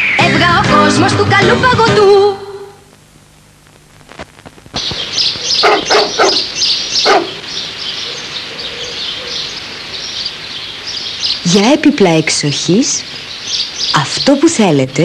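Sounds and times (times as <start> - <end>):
bird chirping: 4.8 - 14.8
dog barking: 5.6 - 7.4.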